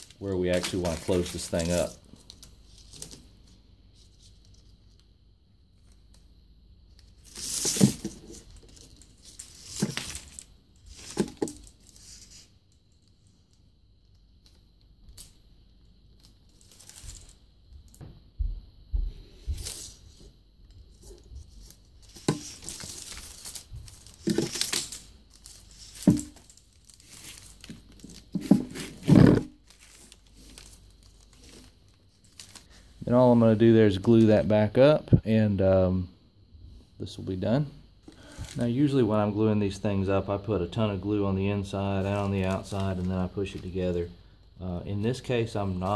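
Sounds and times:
paper crinkling and rustling: 0.0 - 5.1, 7.0 - 13.4, 16.2 - 17.4, 19.5 - 33.0.

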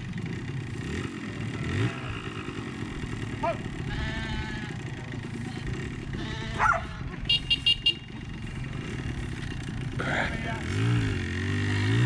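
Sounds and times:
engine running at low revs: 0.0 - 12.0
dog barking: 6.6 - 6.9.

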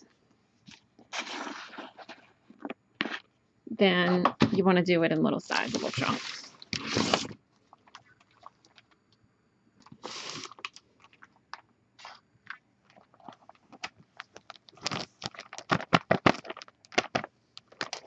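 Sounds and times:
plastic bag crinkling: 12.9 - 18.0.

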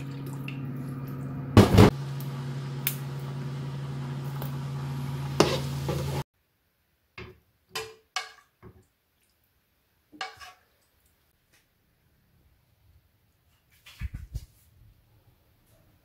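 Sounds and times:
cooktop electric hum: 0.0 - 16.0
spoon stirring in frying pan: 5.2 - 6.2, 7.2 - 9.4, 10.0 - 11.3.

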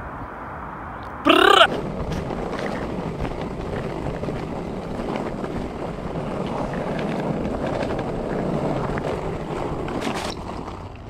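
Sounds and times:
skateboard wheels rolling on dirt: 1.1 - 11.0.

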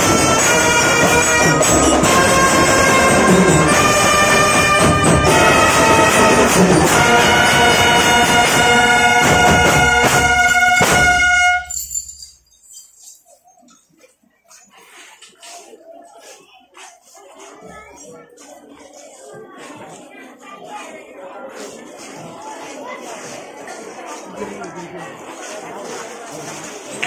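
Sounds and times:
brass horns holding chords: 0.0 - 11.7
marching snare drum: 0.0 - 11.7.

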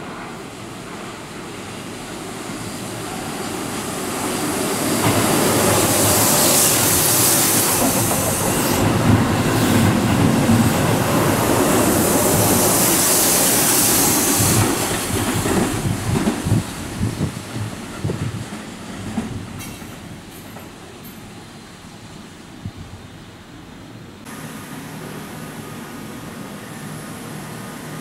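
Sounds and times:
train passing through station: 0.0 - 28.0.

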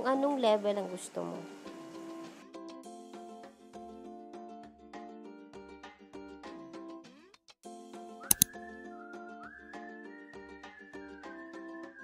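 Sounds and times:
light background music: 0.0 - 3.4, 8.3 - 8.8
whistled tune: 8.1 - 12.0
sharp clicks: 8.3 - 8.5.

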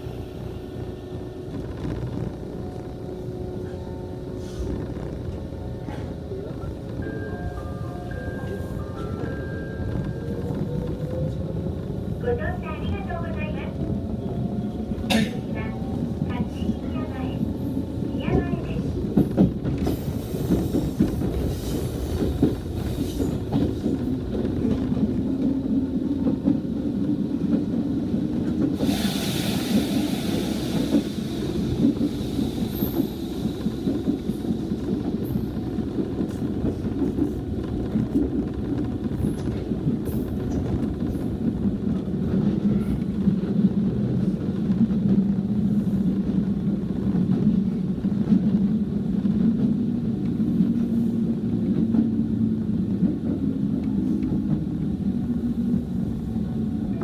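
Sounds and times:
train wheels rumbling on rail: 0.0 - 57.0
hiss: 28.8 - 31.4.

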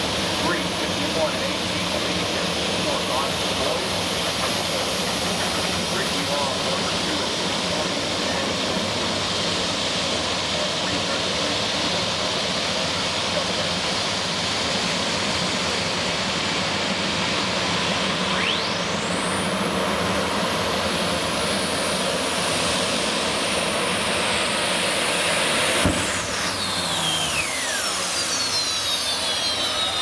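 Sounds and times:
pulling tractor engine roaring: 18.3 - 30.0.

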